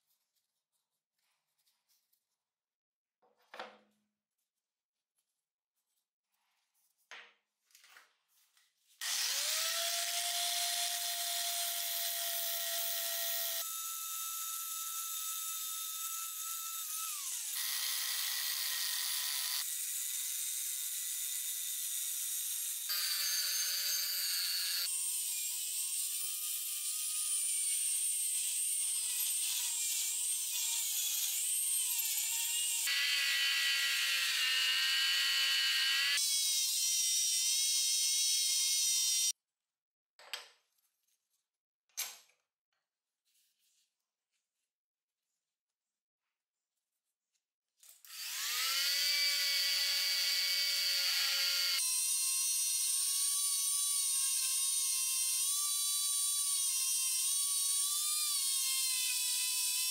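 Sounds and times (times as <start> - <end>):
angle grinder on metal: 9.0 - 39.3, 48.1 - 59.9.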